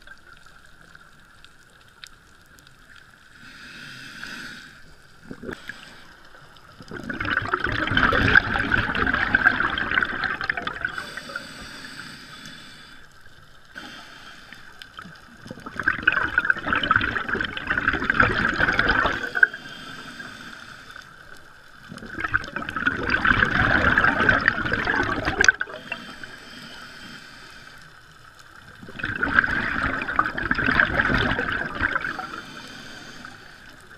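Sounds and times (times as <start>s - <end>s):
regulator bubbles underwater: 5.0s - 11.7s, 14.5s - 20.3s, 20.9s - 26.6s, 27.2s - 33.9s.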